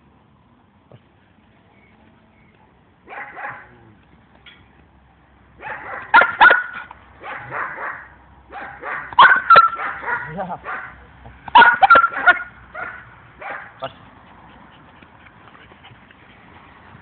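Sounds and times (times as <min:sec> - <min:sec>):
dog barking: 0:03.1 - 0:03.8, 0:05.6 - 0:14.0.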